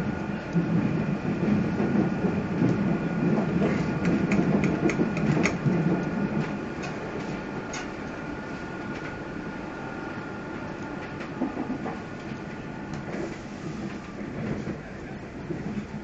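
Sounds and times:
train wheels rumbling on rails: 0.0 - 16.0
wheels clicking over track joints: 1.4 - 8.0.

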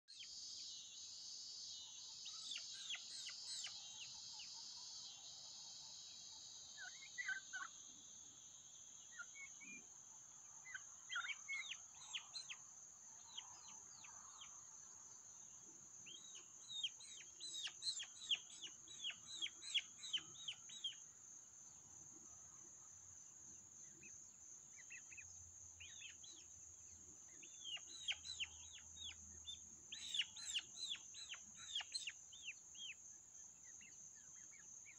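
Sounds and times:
young turkeys peeping: 11.1 - 12.6, 16.1 - 21.0, 27.4 - 33.0.

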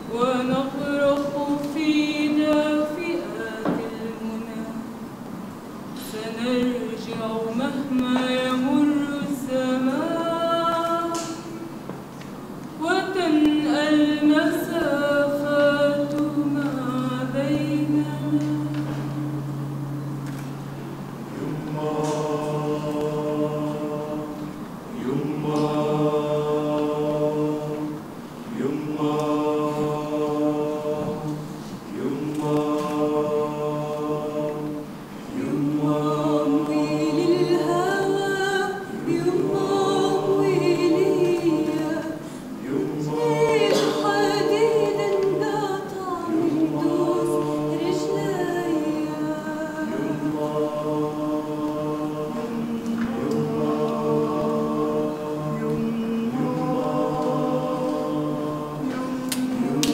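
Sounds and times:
mixed choir singing a cappella: 0.0 - 59.9
low vocal drone: 12.8 - 59.9.

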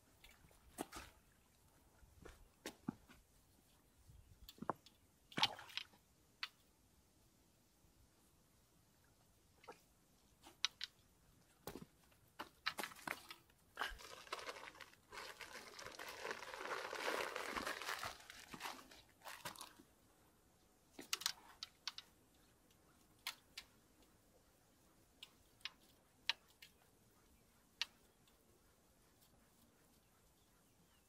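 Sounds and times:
close rustling and crinkling: 12.4 - 19.9.

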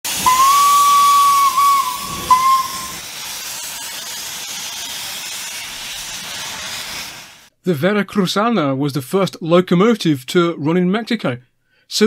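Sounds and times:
steam hissing: 0.0 - 7.5
steam locomotive whistle: 0.1 - 3.1.

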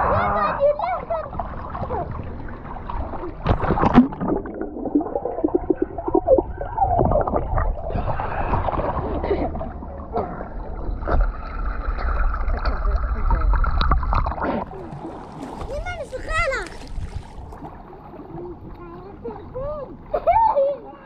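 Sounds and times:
pool water splashing and bubbling: 0.0 - 21.0
sharp splashes: 1.6 - 5.7, 10.9 - 17.9.

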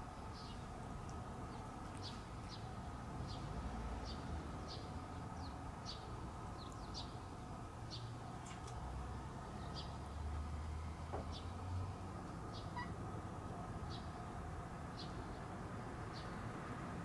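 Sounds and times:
small bird chirping: 12.4 - 13.0.

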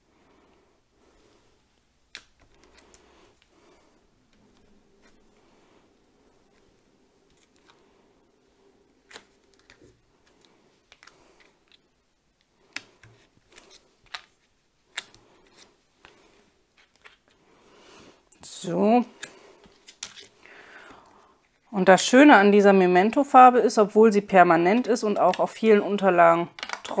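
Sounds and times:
faint steady hum: 0.0 - 27.0
soft handling noise: 1.0 - 17.6.

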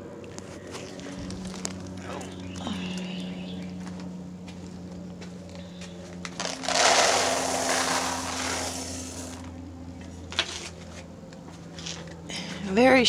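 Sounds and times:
feed pellets pouring in container: 6.4 - 9.5.

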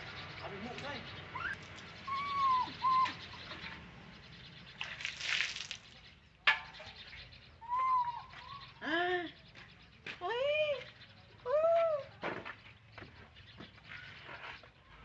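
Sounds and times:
young monkey coo calls: 1.3 - 3.8.

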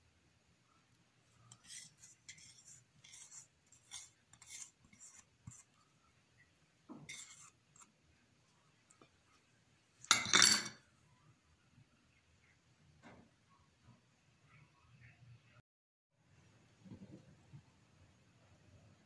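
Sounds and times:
spatula scraping bowl: 1.4 - 5.8, 7.0 - 8.0
spatula knocking: 6.9 - 7.9.

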